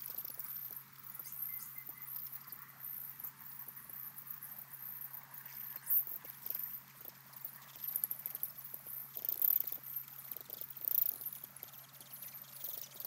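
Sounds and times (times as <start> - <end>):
soft ticks and clicks: 3.2 - 13.0.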